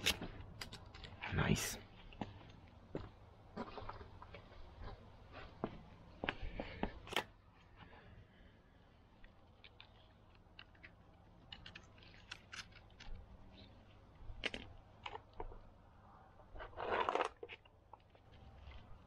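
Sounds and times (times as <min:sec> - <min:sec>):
plastic connector clicks and scrapes: 0:09.6 - 0:13.7
rough crunching rustle: 0:16.5 - 0:19.0.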